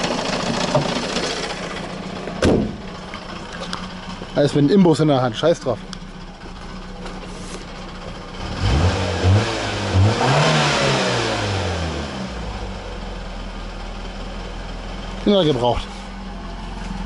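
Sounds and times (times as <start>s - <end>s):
car engine revving: 8.0s - 13.2s.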